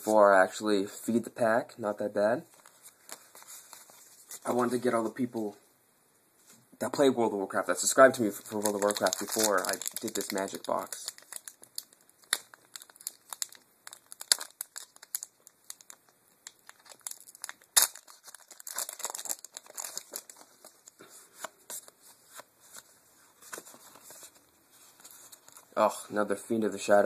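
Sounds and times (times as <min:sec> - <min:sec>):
foil wrapper crinkling and tearing: 0:08.2 - 0:21.0.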